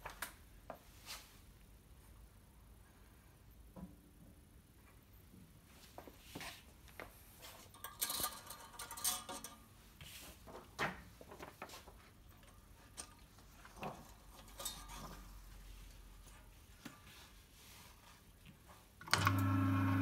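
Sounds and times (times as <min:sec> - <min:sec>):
light clicks and metallic clinks: 0:07.7 - 0:09.6.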